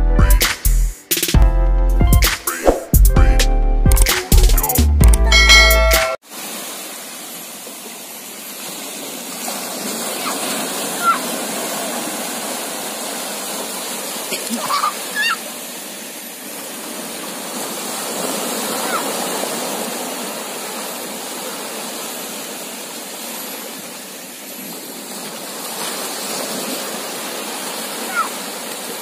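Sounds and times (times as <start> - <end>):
small waves washing over shore: 6.2 - 29.0
children crying out: 14.4 - 15.4.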